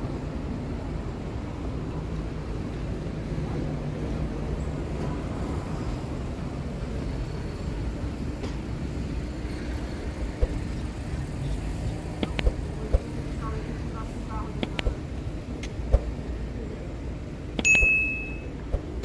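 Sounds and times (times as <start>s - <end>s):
city street traffic rumble: 0.0s - 19.0s.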